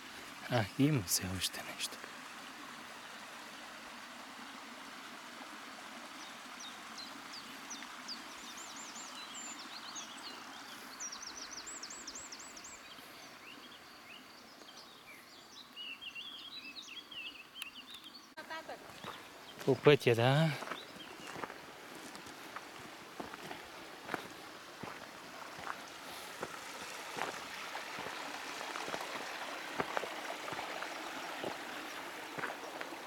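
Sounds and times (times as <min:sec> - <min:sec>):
rural background hiss: 0:00.0 - 0:33.0
small birds chirping and trilling: 0:06.1 - 0:26.4.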